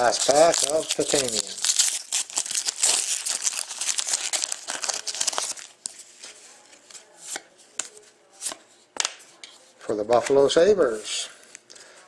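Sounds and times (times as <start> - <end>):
foil wrapper tearing and crinkling: 0.0 - 5.9.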